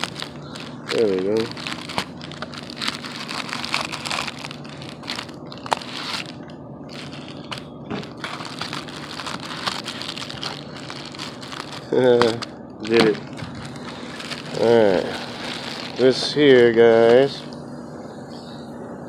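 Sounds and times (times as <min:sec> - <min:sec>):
plastic mailer bag crinkling: 0:00.0 - 0:17.4.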